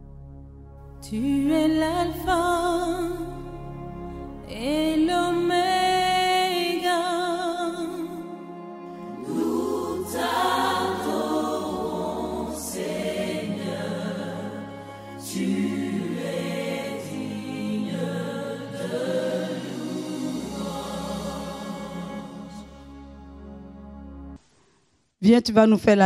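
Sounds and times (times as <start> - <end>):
low bass note: 0.0 - 5.4
choir singing held chords: 5.0 - 24.4.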